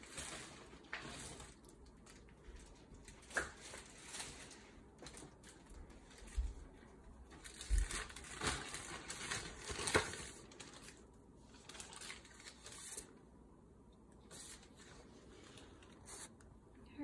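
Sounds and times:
packaging rustling and crinkling: 0.0 - 13.2.

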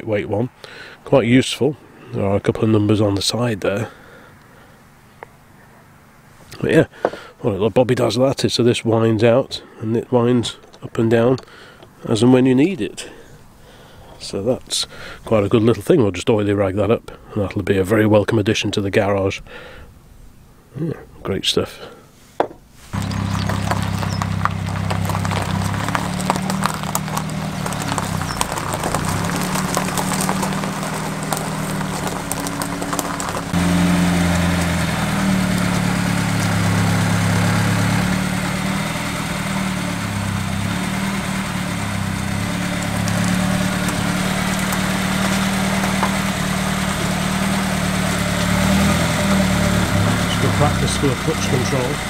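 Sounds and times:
small car engine idling: 23.0 - 52.0.

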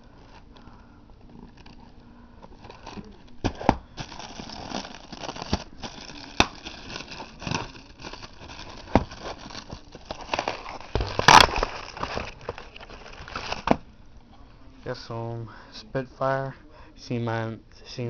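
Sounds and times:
cardboard packaging rustling: 0.0 - 13.8.

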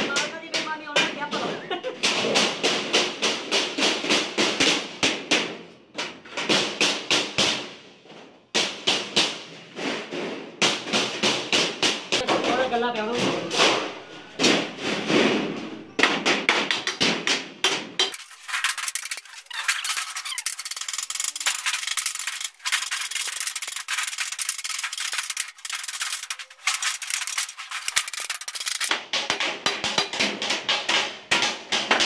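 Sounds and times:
scraping on sheet metal: 18.0 - 28.9.

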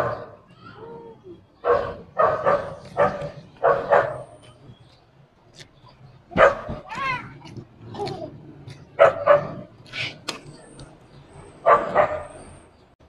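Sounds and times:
dog barking: 1.6 - 4.4, 6.4 - 6.8, 9.0 - 9.7, 11.6 - 12.4.

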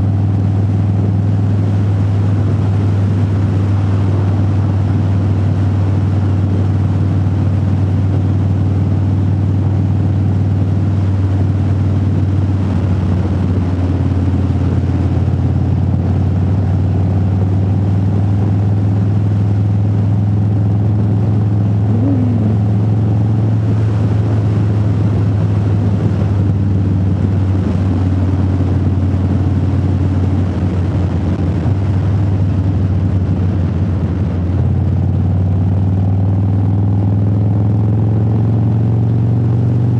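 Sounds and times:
motorcycle engine drone: 0.0 - 39.9.

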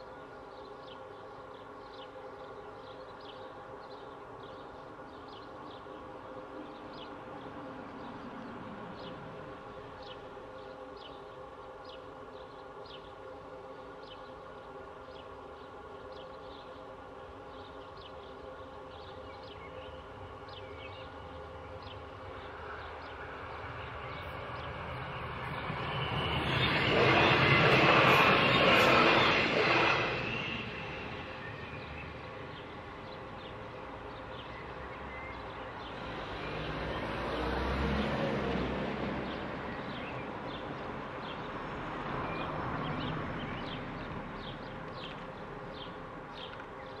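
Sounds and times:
electric train rumbling: 0.0 - 46.9
cars passing at low speed: 31.8 - 46.8.

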